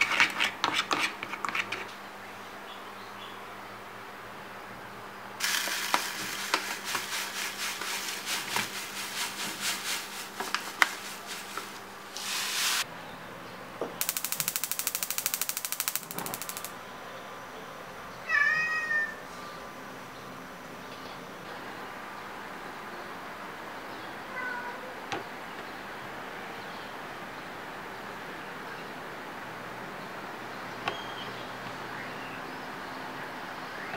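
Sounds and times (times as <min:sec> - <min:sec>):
crumbs poured into plastic bowl: 0:05.4 - 0:12.8
plastic bag rustling: 0:05.4 - 0:12.8
cat meowing: 0:18.2 - 0:19.2.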